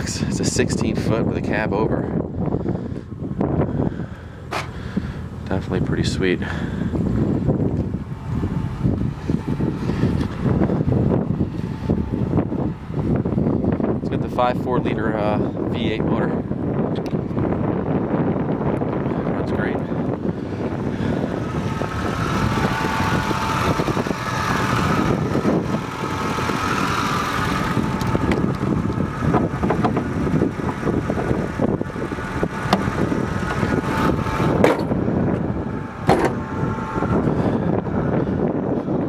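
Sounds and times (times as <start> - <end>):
steady high whine: 0.0 - 39.0
van engine idling: 0.0 - 39.0.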